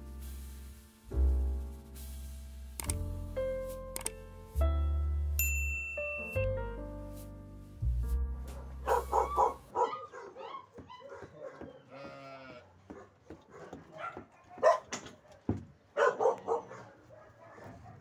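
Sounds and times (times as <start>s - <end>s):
puppies yelping and whining: 9.1s - 11.8s.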